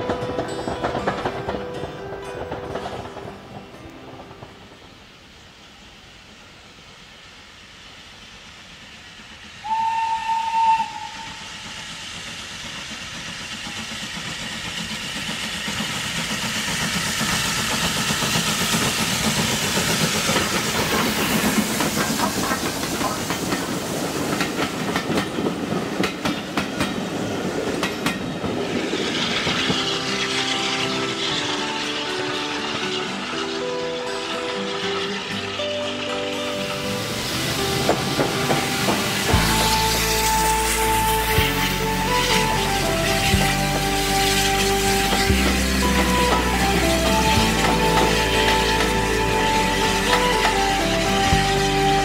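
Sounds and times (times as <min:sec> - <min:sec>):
wheels clicking over rail joints: 0:00.0 - 0:04.8, 0:10.8 - 0:52.0
train running noise: 0:00.0 - 0:52.0
steam locomotive whistle: 0:09.6 - 0:12.4, 0:28.8 - 0:52.0.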